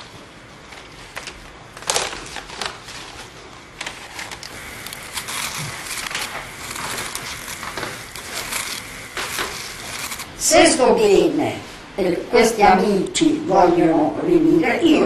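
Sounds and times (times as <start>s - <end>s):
crunchy rustling of fried pieces: 0.1s - 10.3s
pot crackling hiss: 2.0s - 13.2s.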